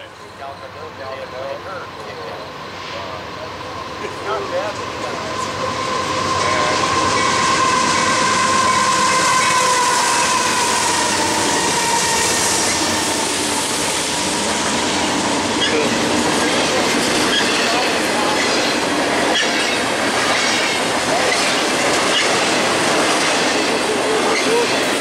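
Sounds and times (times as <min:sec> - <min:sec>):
freight train wheels rumbling: 0:00.0 - 0:25.0.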